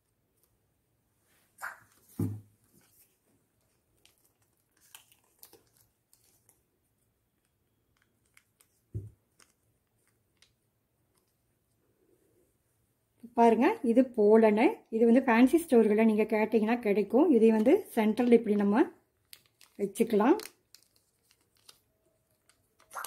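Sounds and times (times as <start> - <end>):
soft thumps: 2.1 - 2.5
plastic packet crinkling: 3.6 - 6.6, 19.2 - 23.0.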